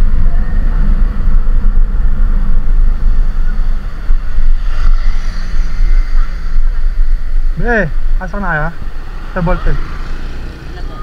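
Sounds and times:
wind rumble on microphone: 0.0 - 11.0
scooter engine: 8.8 - 11.0.

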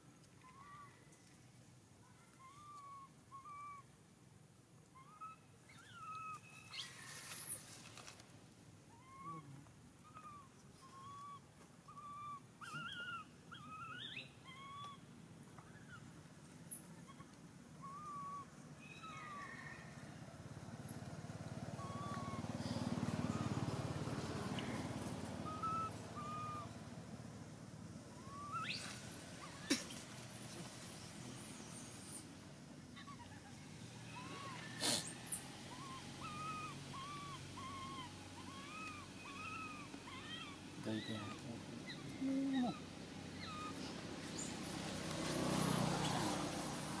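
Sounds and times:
infant monkey cooing: 8.9 - 11.4, 21.8 - 23.6, 24.5 - 26.8, 33.0 - 43.8
monkey squealing: 25.5 - 26.7, 28.2 - 29.8, 34.1 - 43.8.

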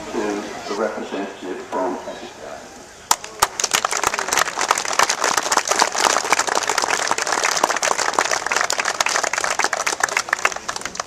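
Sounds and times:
crowd applauding: 3.1 - 11.0.

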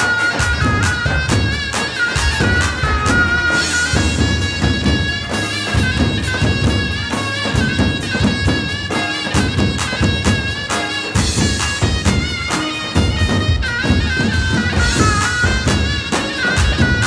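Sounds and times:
large drums beating: 0.0 - 17.0
shrill reed pipe melody: 0.0 - 17.0.

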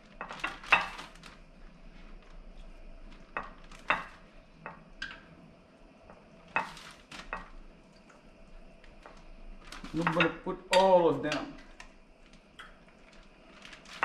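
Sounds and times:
plastic bag crinkling: 0.0 - 2.4, 6.6 - 7.5, 9.0 - 10.3, 11.7 - 14.0.

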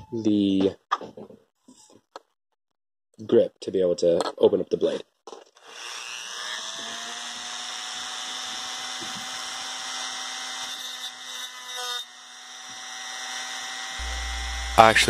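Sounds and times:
rotary tool grinding steel: 5.6 - 15.0.

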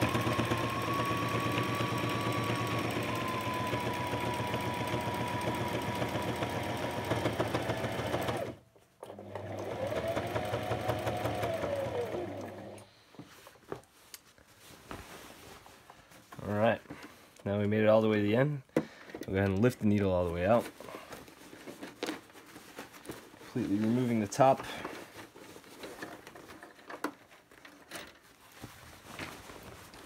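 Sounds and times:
electric sewing machine stitching: 0.0 - 12.8.

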